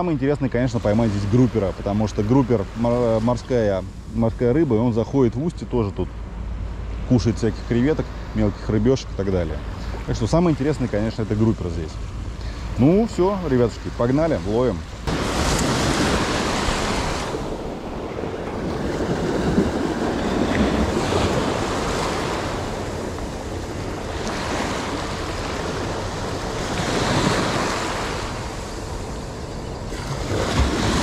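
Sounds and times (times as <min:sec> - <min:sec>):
sea waves breaking: 0:00.0 - 0:31.0
wind rumbling on microphone: 0:13.7 - 0:31.0.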